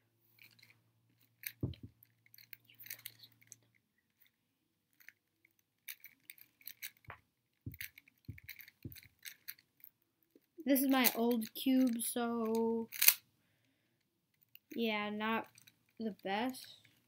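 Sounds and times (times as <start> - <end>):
soft low thumps: 1.6 - 1.9
puzzle cube clicking: 10.9 - 13.2.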